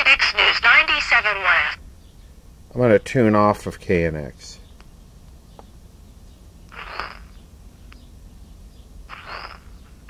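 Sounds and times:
radio hum and hiss: 0:00.0 - 0:01.8, 0:06.7 - 0:08.0, 0:09.1 - 0:10.0
radio static with whistle: 0:06.7 - 0:07.3, 0:09.1 - 0:09.8.

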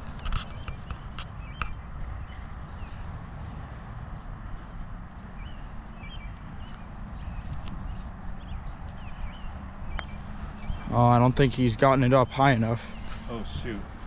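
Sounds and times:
small birds chirping: 0:00.0 - 0:14.0
wind rumble on microphone: 0:00.0 - 0:14.0.

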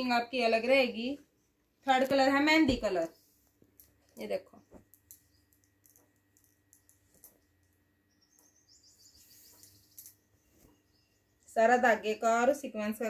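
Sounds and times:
faint high chirping: 0:04.3 - 0:11.6.

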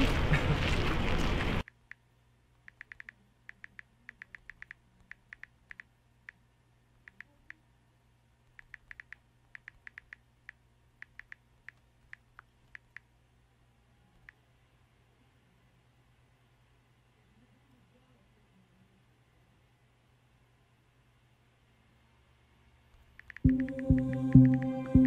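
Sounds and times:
phone keyboard clicks: 0:02.6 - 0:06.4, 0:08.5 - 0:13.1, 0:23.0 - 0:25.0.

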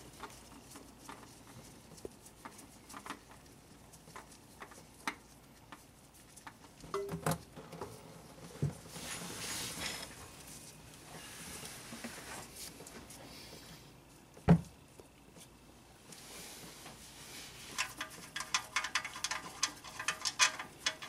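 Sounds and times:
rustle of filter handled: 0:15.3 - 0:21.0.

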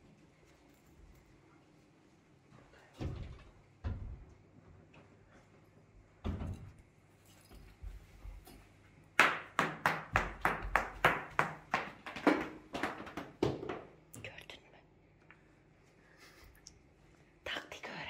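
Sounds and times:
footsteps on tiled floor: 0:07.4 - 0:08.8, 0:10.1 - 0:13.8.

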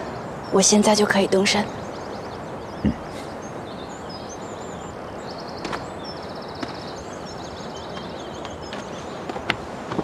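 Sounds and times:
background hiss: 0:00.0 - 0:10.0
small birds chirping: 0:00.0 - 0:10.0.

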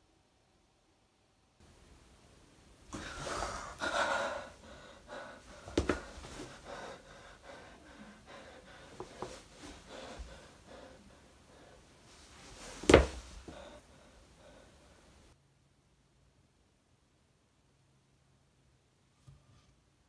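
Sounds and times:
person breathing heavily and gasping: 0:02.9 - 0:15.2.

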